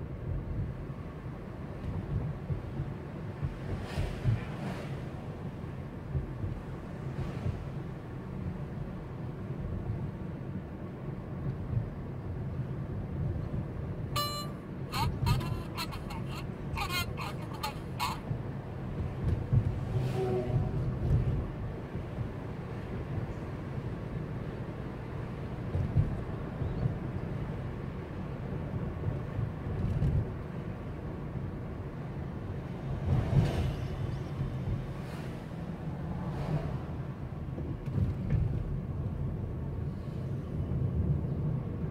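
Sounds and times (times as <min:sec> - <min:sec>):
car driving rumble from inside: 0:00.0 - 0:41.9
short high beep: 0:14.2 - 0:14.6.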